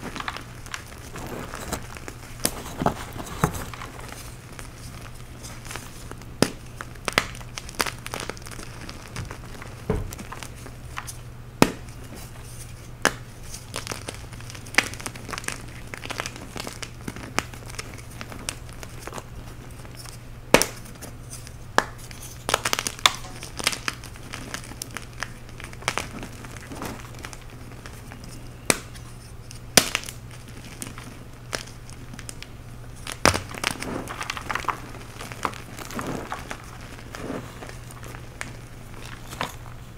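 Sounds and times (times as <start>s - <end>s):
chalk chunks snapping and crackling: 0.0s - 39.9s.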